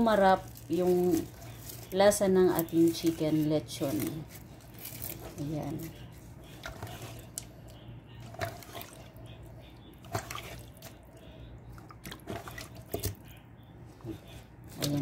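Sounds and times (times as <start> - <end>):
faint low hum: 0.0 - 15.0
hands squishing marinade into chicken: 4.0 - 15.0.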